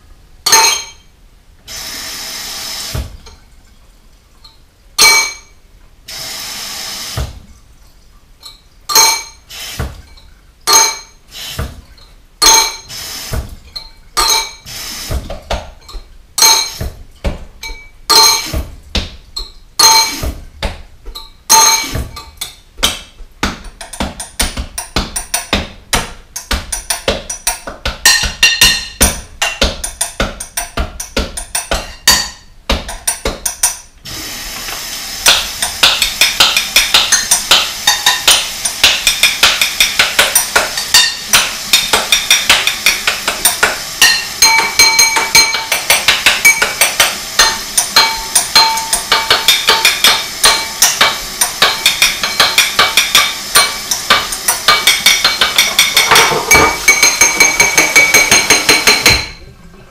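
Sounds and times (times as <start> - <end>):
dishes and cutlery clinking: 0.4 - 1.1, 4.4 - 5.6, 8.4 - 11.2, 11.9 - 12.9, 13.6 - 14.7, 15.4 - 18.6, 19.3 - 20.3, 21.1 - 22.6, 23.6 - 33.9, 35.3 - 59.5
faucet water running: 1.7 - 59.4.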